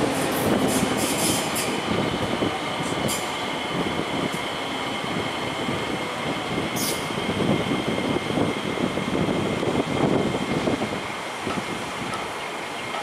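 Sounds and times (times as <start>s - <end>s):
train wheels rumbling: 0.0s - 13.0s.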